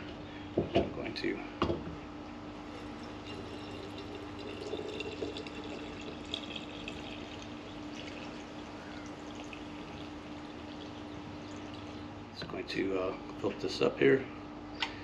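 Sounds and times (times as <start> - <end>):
water pouring into glass jar: 2.8 - 12.2.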